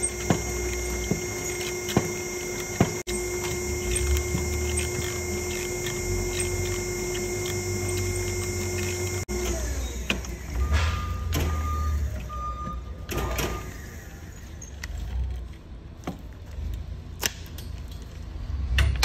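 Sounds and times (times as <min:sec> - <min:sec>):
tubing clicking on cable reel: 0:00.0 - 0:09.6.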